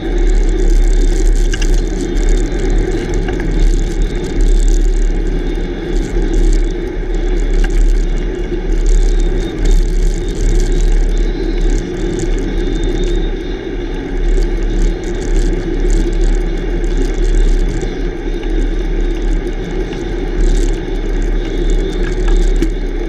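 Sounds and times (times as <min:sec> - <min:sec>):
tyre rolling on coarse asphalt: 0:00.0 - 0:13.0
wind buffeting microphone: 0:00.0 - 0:23.0.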